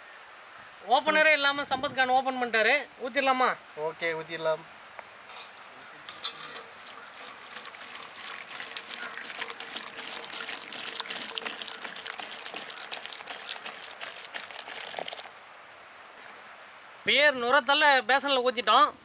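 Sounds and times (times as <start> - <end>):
beer pouring and fizzing: 5.3 - 15.4.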